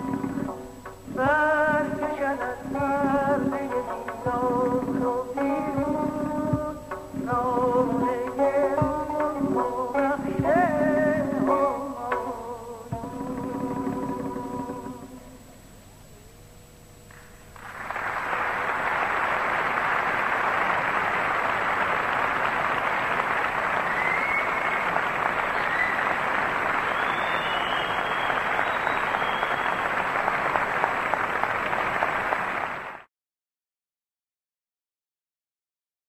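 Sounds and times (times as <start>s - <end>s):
plucked tar notes: 0.0s - 15.5s
audience applause: 17.6s - 33.1s
faint high calls: 23.8s - 30.0s.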